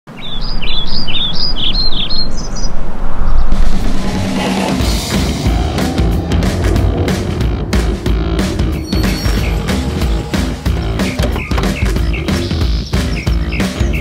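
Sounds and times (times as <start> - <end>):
bird chirping: 0.1 - 3.6, 8.4 - 14.0
rush of noise: 0.1 - 11.1
low hum: 0.2 - 12.2
sharp hits: 2.9 - 12.6
music: 3.9 - 14.0.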